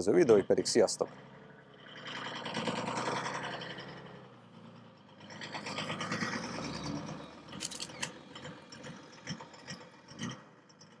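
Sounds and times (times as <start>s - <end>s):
engine running with clatter: 0.0s - 11.0s.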